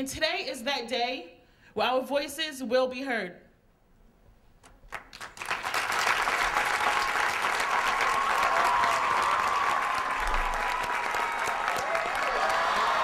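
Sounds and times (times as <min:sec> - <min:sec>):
audience applause: 0:04.9 - 0:13.0.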